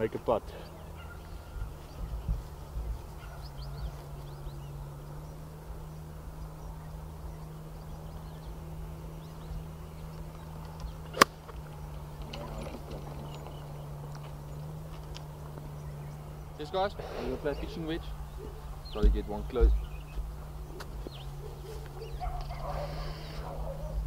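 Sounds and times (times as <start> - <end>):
steady low hum: 0.0 - 24.0
golf club striking ball: 10.6 - 14.2
faint bird chirps: 15.7 - 24.0.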